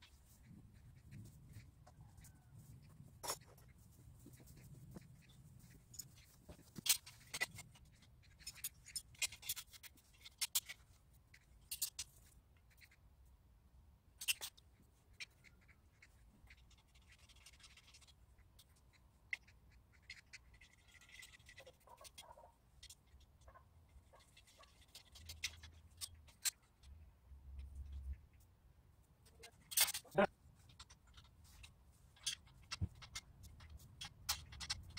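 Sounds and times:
metal pipe parts clicking: 29.3 - 34.9.

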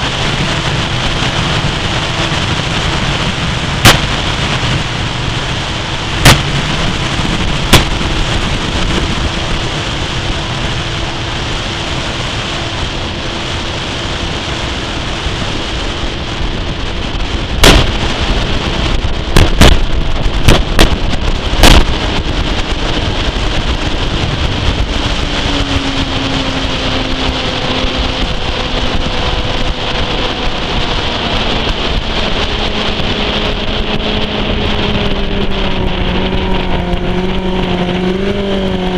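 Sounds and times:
outboard engine running: 0.0 - 38.9
rushing water: 0.0 - 38.9
wind rumble: 0.0 - 38.9
sharp thumps: 3.8 - 4.7, 6.1 - 9.1, 17.6 - 18.4, 19.2 - 22.3.

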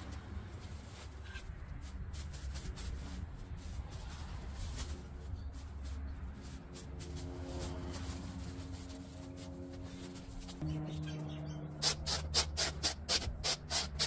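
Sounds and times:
faint rustling and scraping: 0.4 - 10.6.

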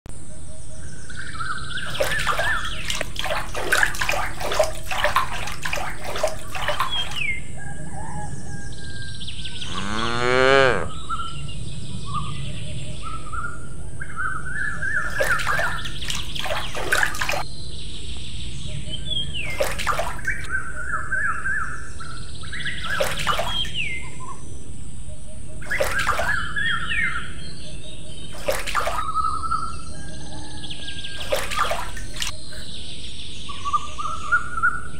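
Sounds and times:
small birds chirping: 0.8 - 34.9
water splashing and trickling: 1.7 - 7.5, 15.0 - 17.5, 19.1 - 20.5, 22.7 - 24.1, 25.6 - 26.8, 28.2 - 29.4, 31.0 - 32.8.

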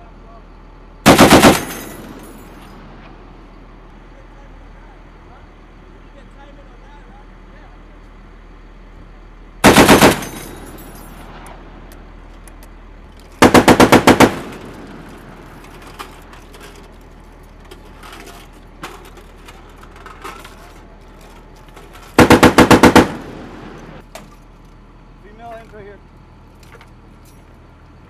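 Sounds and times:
machine gun bursts: 1.1 - 2.3, 9.6 - 10.8, 13.4 - 15.1, 22.2 - 23.8.

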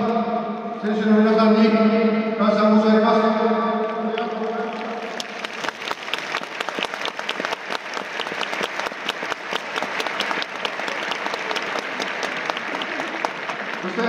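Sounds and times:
crowd applauding: 4.1 - 14.0.

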